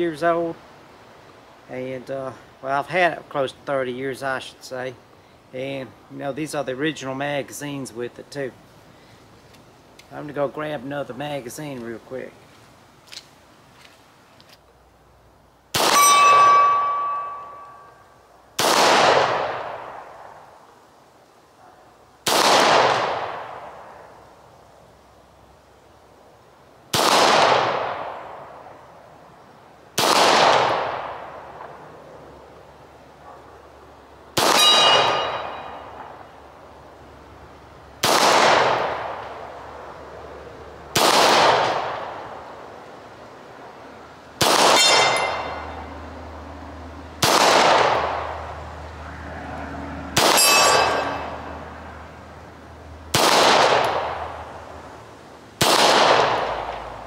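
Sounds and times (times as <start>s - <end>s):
pistol shots echoing: 15.8s - 17.7s, 34.4s - 35.8s, 38.0s - 39.2s, 41.0s - 42.1s, 44.4s - 45.8s, 47.2s - 48.2s, 50.2s - 51.3s, 53.2s - 54.2s, 55.6s - 56.7s
steel target ringing: 15.9s - 18.1s, 34.5s - 36.0s, 44.7s - 45.9s, 50.2s - 51.4s.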